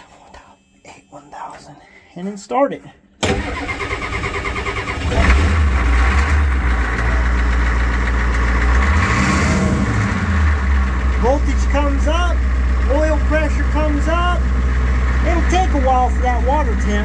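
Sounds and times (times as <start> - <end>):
starter motor cranking: 3.2 - 11.2
diesel engine idling: 3.3 - 17.0.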